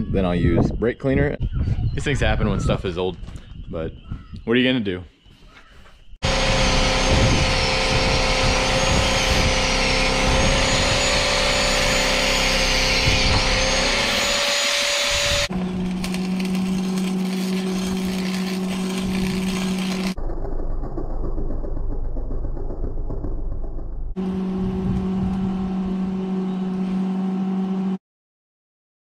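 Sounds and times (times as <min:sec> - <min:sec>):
electric arc welding crackle: 0:06.2 - 0:20.2.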